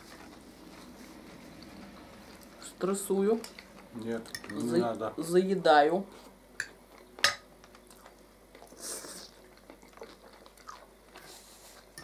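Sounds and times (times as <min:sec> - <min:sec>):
quiet chewing: 0:00.0 - 0:02.6, 0:06.9 - 0:12.0
cutlery clinking against plates: 0:04.2 - 0:04.6.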